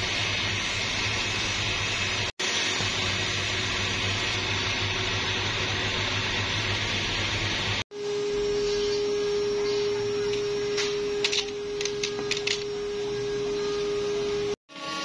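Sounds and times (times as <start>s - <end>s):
low mains hum: 3.5s - 14.6s.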